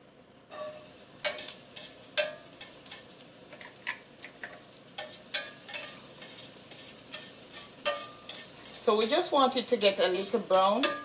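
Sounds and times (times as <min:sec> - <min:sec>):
garlic sizzling in oil: 0:00.5 - 0:11.0
utensil scraping a pan: 0:00.5 - 0:11.0.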